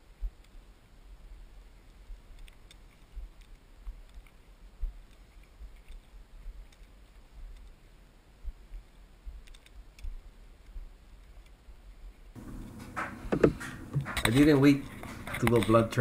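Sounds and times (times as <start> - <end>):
soft thumps on microphone: 12.4 - 14.2.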